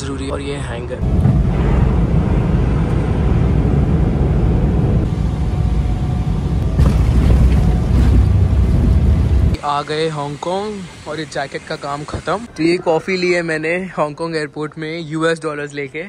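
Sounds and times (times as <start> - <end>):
aircraft cabin low rumble: 0.3 - 9.6.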